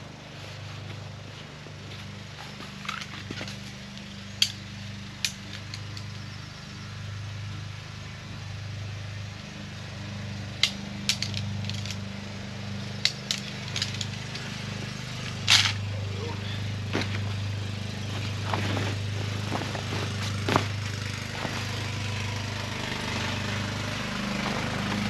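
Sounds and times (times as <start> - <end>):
steady low hum: 0.0 - 25.0
tent poles clicking together: 2.6 - 6.3, 10.6 - 12.1, 12.9 - 14.5, 15.2 - 15.9.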